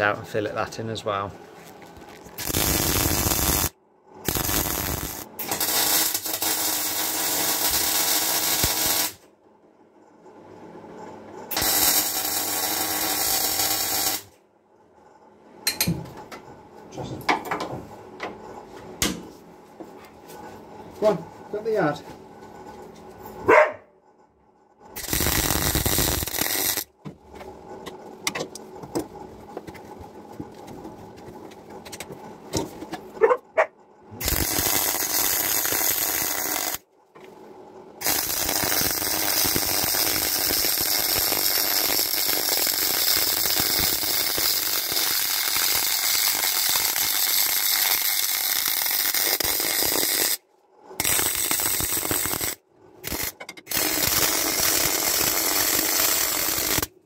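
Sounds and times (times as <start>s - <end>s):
welding arc hissing: 2.4s - 9.2s, 11.5s - 14.3s, 25.0s - 26.9s, 34.2s - 36.8s, 38.0s - 50.4s, 51.0s - 56.9s.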